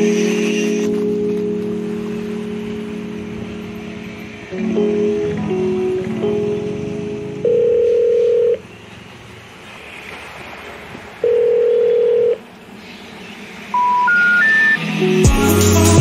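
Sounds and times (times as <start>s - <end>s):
long low telephone beeps: 7.4s - 8.6s, 11.2s - 12.4s, 13.8s - 14.8s
short rising beeps: 13.7s - 14.8s.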